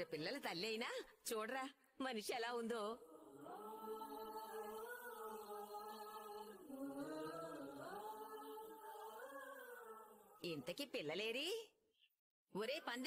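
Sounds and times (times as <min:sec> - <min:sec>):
chant-like voices holding notes: 0:02.8 - 0:11.0.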